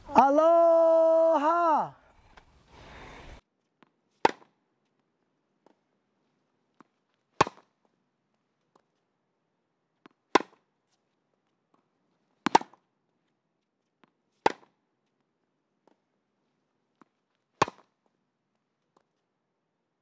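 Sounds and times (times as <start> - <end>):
racket hitting tennis ball: 4.2 - 4.5, 6.8 - 7.7, 10.0 - 10.6, 12.4 - 12.9, 14.4 - 14.8, 17.0 - 17.9.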